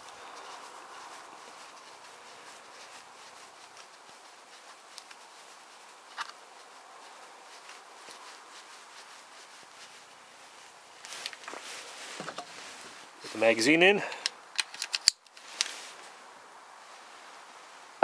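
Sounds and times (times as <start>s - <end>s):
low steady hiss: 0.0s - 18.0s
rifle handling noise: 14.1s - 15.8s.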